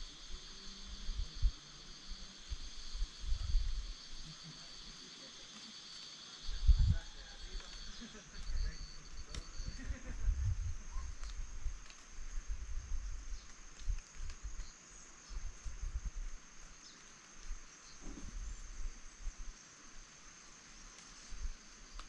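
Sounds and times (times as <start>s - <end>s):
wind rumbling on microphone: 0.0s - 4.3s, 6.4s - 16.7s
faint chirps: 0.0s - 11.4s
insects trilling: 0.0s - 22.0s.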